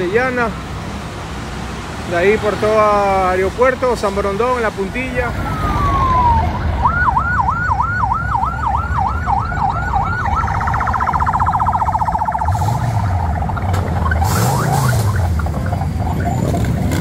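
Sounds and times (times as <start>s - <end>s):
traffic noise: 0.0s - 17.0s
electronic siren yelp and warble: 5.4s - 17.0s
vehicle engine revving: 11.4s - 17.0s.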